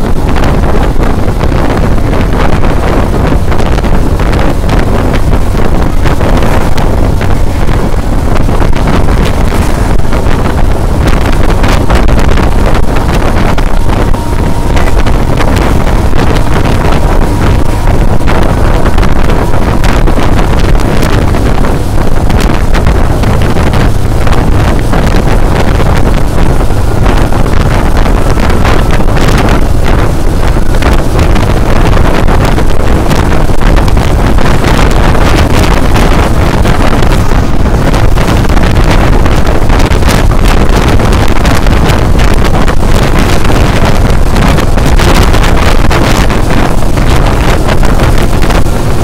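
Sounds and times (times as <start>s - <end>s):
vehicle tyres and engine rumble: 0.0s - 49.0s
wind buffeting microphone: 0.0s - 49.0s.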